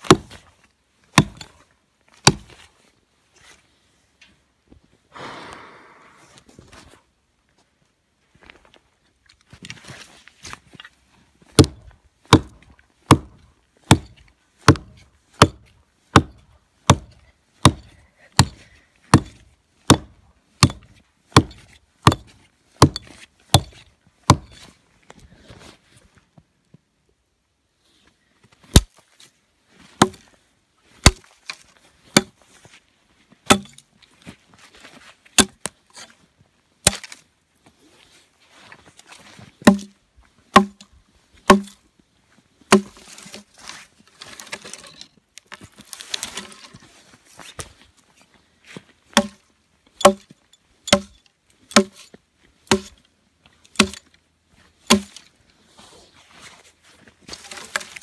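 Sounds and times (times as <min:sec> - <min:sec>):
hatchet chopping wood: 0:00.0 - 0:00.4, 0:01.1 - 0:01.5, 0:02.2 - 0:02.6, 0:11.6 - 0:24.6, 0:28.7 - 0:28.9, 0:30.0 - 0:30.2, 0:31.0 - 0:31.3, 0:32.1 - 0:32.4, 0:33.5 - 0:33.8, 0:35.4 - 0:35.7, 0:36.8 - 0:37.2, 0:39.6 - 0:40.9, 0:41.5 - 0:41.8, 0:42.7 - 0:43.3, 0:49.1 - 0:49.4, 0:50.0 - 0:50.3, 0:50.9 - 0:52.1, 0:52.7 - 0:53.0, 0:53.7 - 0:54.1, 0:54.8 - 0:55.3, 0:57.4 - 0:58.0.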